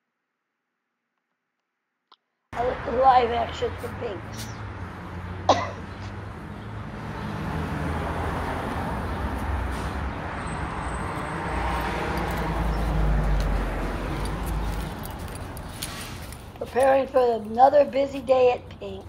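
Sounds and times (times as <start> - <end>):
passing vehicle rumble: 2.6 - 17.8.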